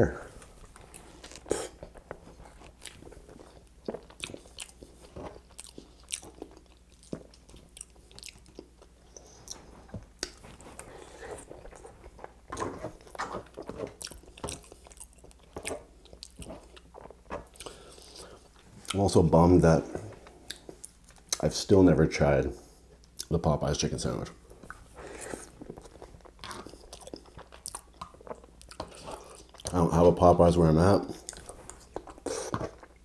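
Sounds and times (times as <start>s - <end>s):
chewing and wet mouth sounds: 0.6s - 19.2s, 24.5s - 29.8s, 31.1s - 33.0s.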